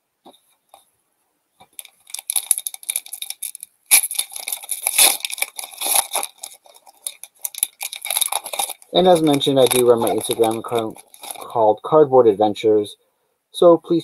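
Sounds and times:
foil wrapper crinkling and tearing: 0:01.7 - 0:11.5.

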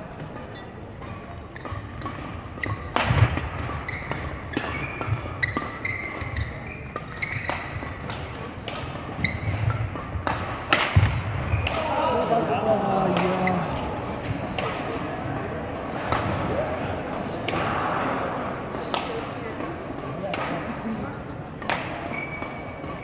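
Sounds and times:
racket hitting shuttlecock: 0:00.2 - 0:20.8, 0:21.6 - 0:23.0
shoes squeaking on hardwood floor: 0:03.8 - 0:08.0, 0:09.2 - 0:09.7, 0:14.2 - 0:14.6, 0:22.1 - 0:23.0.

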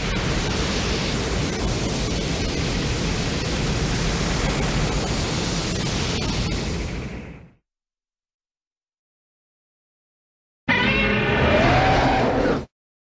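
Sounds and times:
loud steady rushing noise: 0:00.0 - 0:07.6.

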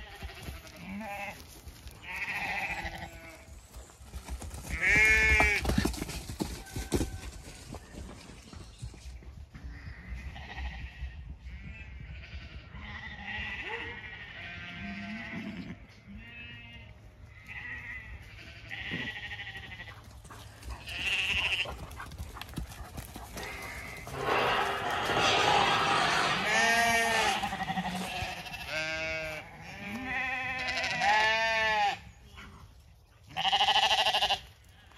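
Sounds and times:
sheep and lambs bleating: 0:00.0 - 0:03.6, 0:04.7 - 0:05.7, 0:09.6 - 0:20.0, 0:20.6 - 0:21.8, 0:23.4 - 0:32.6, 0:33.3 - 0:34.9
pony galloping: 0:01.4 - 0:09.6, 0:19.5 - 0:25.1.

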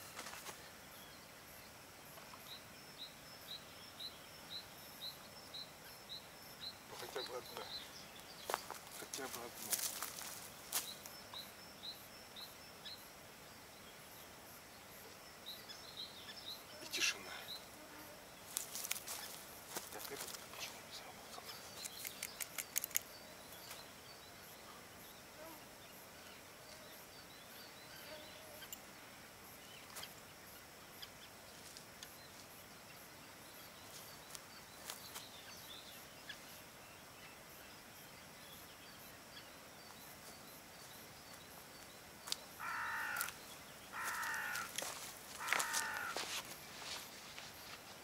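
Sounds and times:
faint high bird chirping: 0:18.5 - 0:24.8
light clicks: 0:21.8 - 0:23.1
large bird loud calls: 0:42.6 - 0:46.4.

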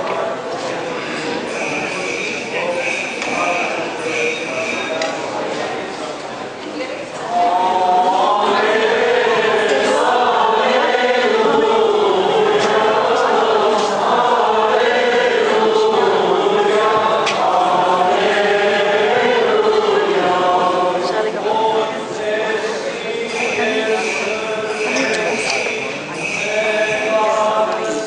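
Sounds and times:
choir singing a chant: 0:07.2 - 0:28.0.

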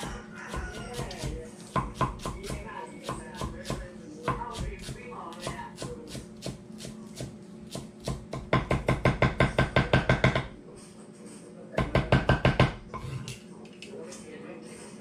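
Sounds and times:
knife chopping on wooden board: 0:00.5 - 0:10.5, 0:11.8 - 0:12.8.

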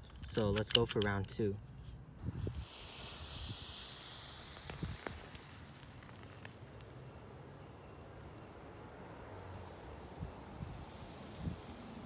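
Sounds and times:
thermite fizzing hiss: 0:02.4 - 0:07.4
sharp crackles: 0:02.6 - 0:09.0.

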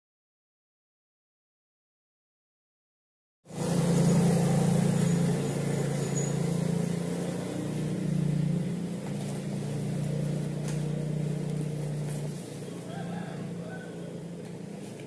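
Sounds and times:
low engine hum: 0:03.5 - 0:15.0.

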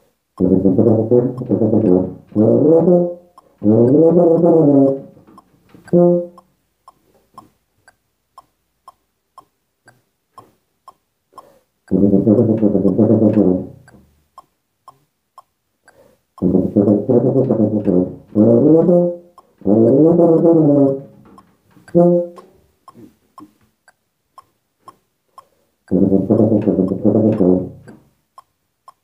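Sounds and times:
metronome ticking: 0:00.0 - 0:29.0
tuba playing short phrases: 0:00.4 - 0:06.5, 0:11.9 - 0:14.0, 0:16.4 - 0:21.3, 0:21.9 - 0:22.5, 0:25.9 - 0:28.0.

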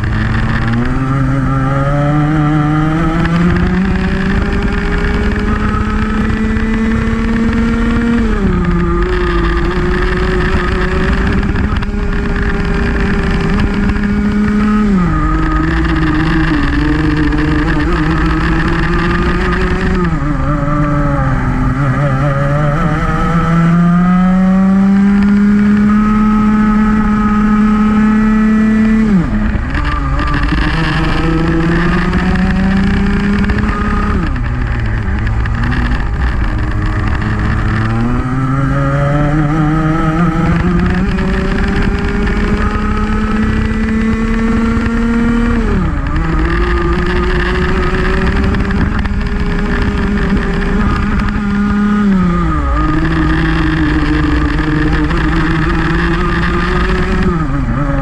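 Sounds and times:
two-stroke kart engine racing: 0:00.0 - 0:58.0.

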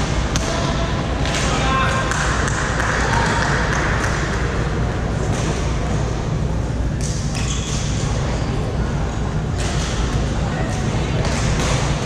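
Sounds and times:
crowd chatter: 0:00.0 - 0:12.0
rackets hitting shuttlecocks: 0:10.7 - 0:12.0.

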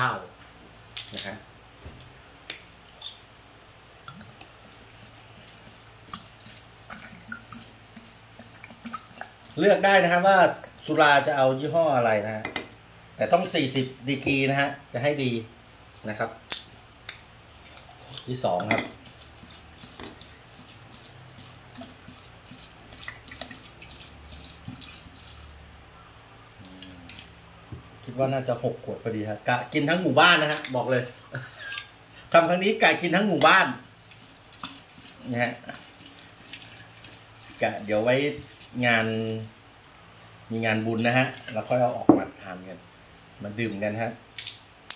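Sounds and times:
liquid trickling and gurgling: 0:04.1 - 0:11.3, 0:17.6 - 0:25.7, 0:33.0 - 0:39.8.

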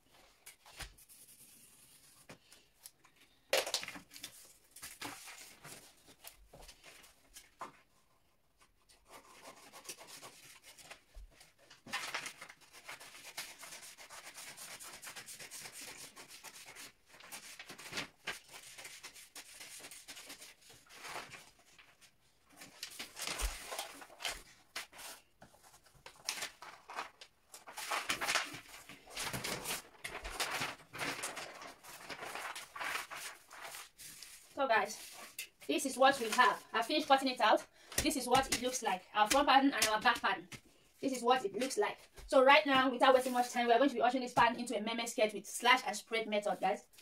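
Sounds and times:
paper rustling: 0:03.6 - 0:37.2, 0:42.7 - 0:43.6.

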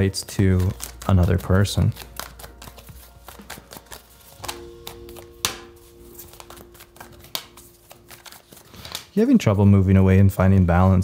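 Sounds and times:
cards being shuffled: 0:00.0 - 0:09.3
low held musical chord: 0:00.0 - 0:10.8
card snap: 0:01.9 - 0:09.1.

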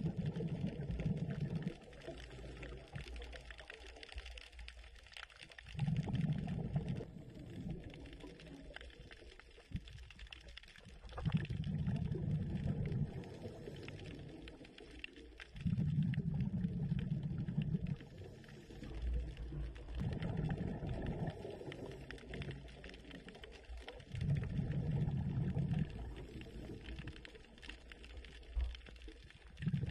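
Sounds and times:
diver exhaling bubbles underwater: 0:00.0 - 0:03.2, 0:05.6 - 0:09.1, 0:10.9 - 0:27.4, 0:29.4 - 0:29.9
underwater water noise: 0:00.0 - 0:29.9.

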